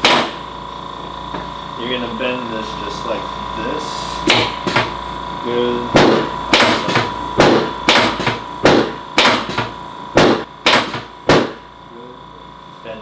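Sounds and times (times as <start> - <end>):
sharp knocks: 6.0 - 11.6.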